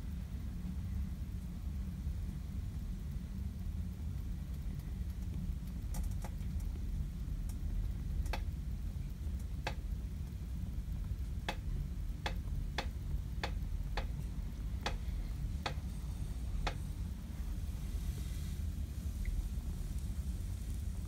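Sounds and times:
low steady rumble: 0.0 - 21.0.

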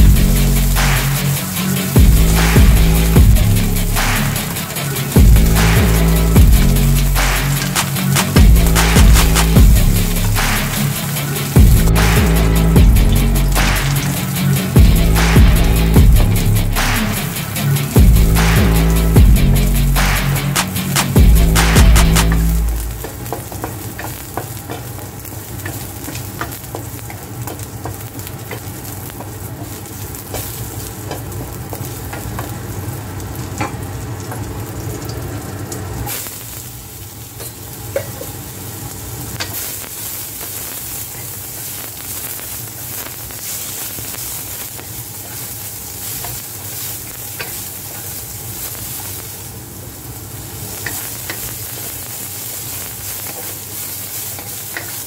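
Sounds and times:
garlic sizzling in hot oil: 0.0 - 55.0
vegetables stirred in oil: 22.2 - 55.0
spatula scraping a wok: 53.2 - 55.0.

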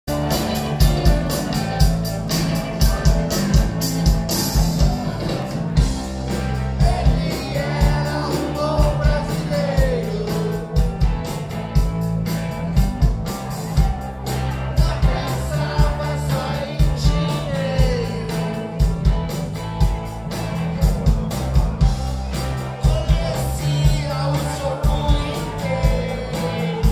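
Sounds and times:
live rock band playing: 0.1 - 26.9
lead singer vocals: 6.6 - 11.1, 14.7 - 18.9, 22.8 - 26.9.

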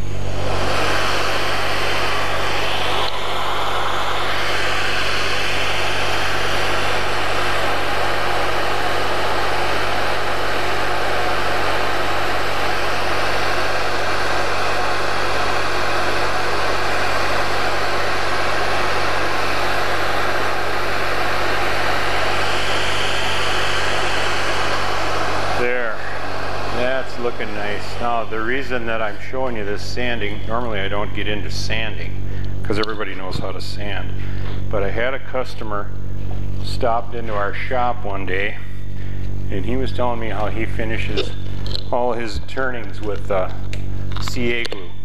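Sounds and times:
wood lathe running: 0.0 - 29.0.

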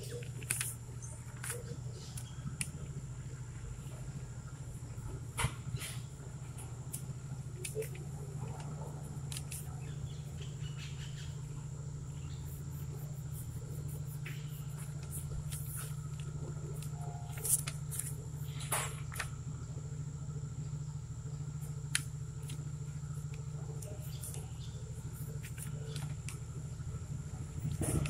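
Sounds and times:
sharp clicks and crackles: 0.0 - 3.0, 5.4 - 10.6, 12.2 - 19.4, 21.6 - 26.9
faint high whine: 0.0 - 28.0
steady low hum: 0.0 - 28.0.

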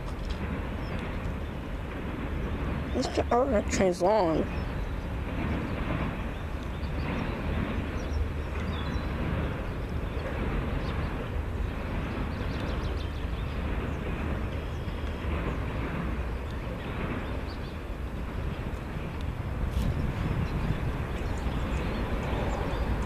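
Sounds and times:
freight train rumbling past: 0.0 - 23.0.

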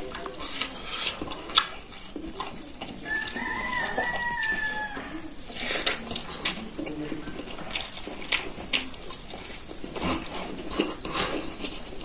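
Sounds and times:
eating sounds smacking: 0.0 - 12.0
rooster crowing: 3.0 - 5.5.

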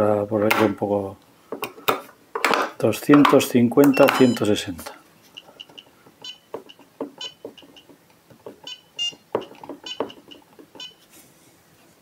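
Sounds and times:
button clicks: 3.8 - 4.4.

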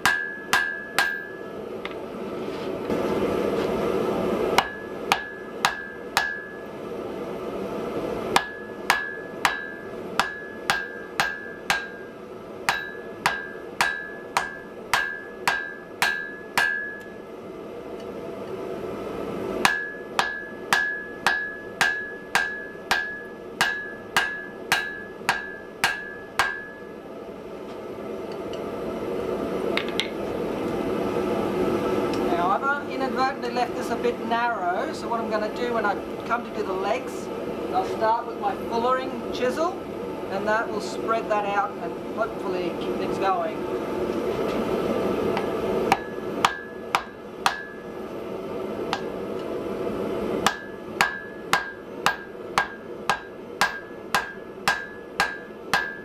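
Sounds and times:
hammer striking iron on anvil: 0.0 - 1.5, 4.6 - 6.6, 8.3 - 17.2, 19.6 - 26.9, 45.9 - 47.9, 48.9 - 49.1, 50.4 - 56.0.

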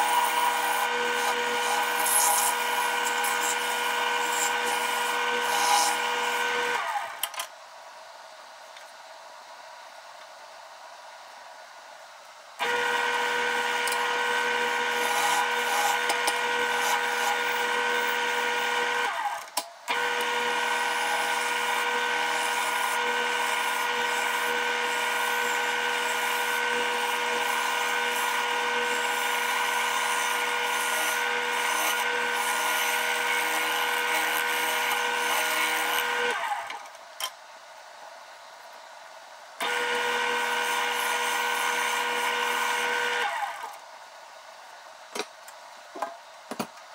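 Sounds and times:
gouge cutting spinning wood: 0.0 - 6.8, 12.6 - 19.1, 19.9 - 36.4, 39.6 - 43.4
wood lathe motor whine: 0.0 - 7.1, 12.6 - 36.8, 39.6 - 43.8.

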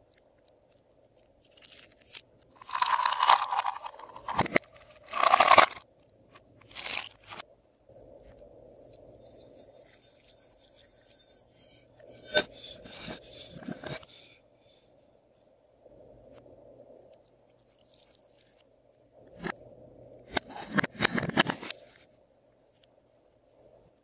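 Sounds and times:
container clicking and scraping: 1.4 - 5.8, 6.6 - 7.4, 12.3 - 14.1, 20.3 - 21.8.

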